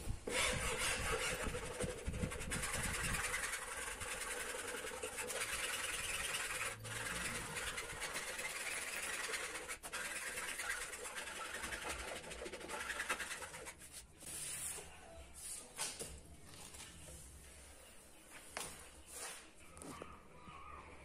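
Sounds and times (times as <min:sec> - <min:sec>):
metal file scraping laminate edge: 0:02.6 - 0:14.0.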